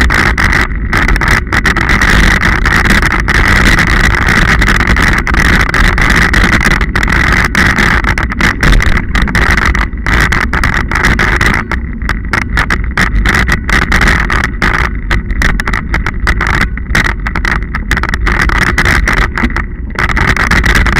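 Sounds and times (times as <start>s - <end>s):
bike tyres rolling on gravel: 0.0s - 20.9s
wind on microphone: 0.0s - 20.9s.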